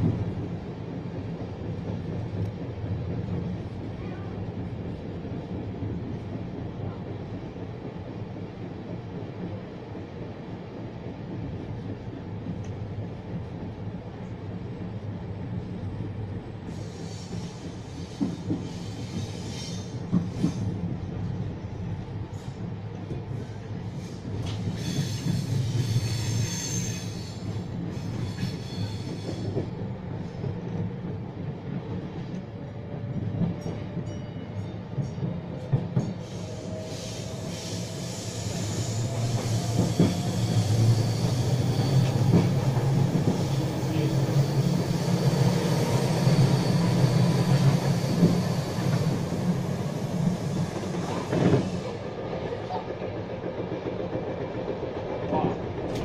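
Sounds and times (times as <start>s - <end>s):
train wheels rumbling on track: 0.0s - 56.0s
wheel squeal: 36.4s - 43.6s.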